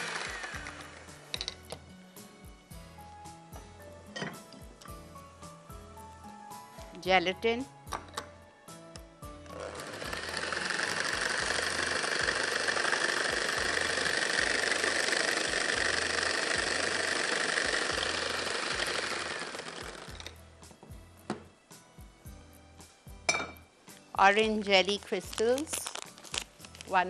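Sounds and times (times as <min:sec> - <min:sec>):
electric hand mixer running: 0:00.0 - 0:01.3, 0:09.5 - 0:20.4.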